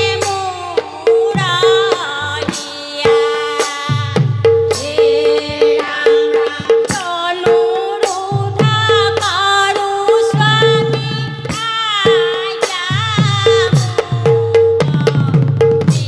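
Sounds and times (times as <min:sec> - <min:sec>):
women's chorus singing: 0:04.8 - 0:08.4.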